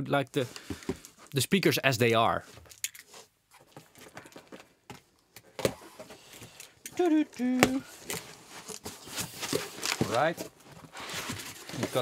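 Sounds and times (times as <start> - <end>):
person humming: 6.9 - 7.9
cardboard box being opened: 7.6 - 12.0.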